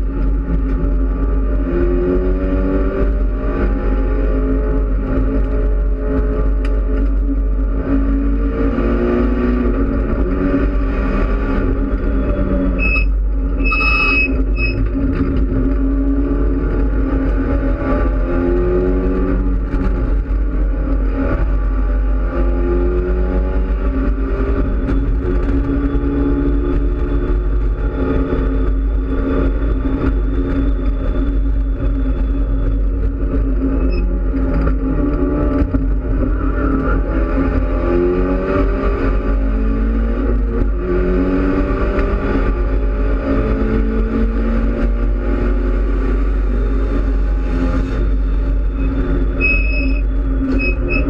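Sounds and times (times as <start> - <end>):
race car engine revving through gears: 0.0 - 51.0
wind and road noise: 0.0 - 51.0
brief high squeal: 12.8 - 14.8, 48.8 - 51.0.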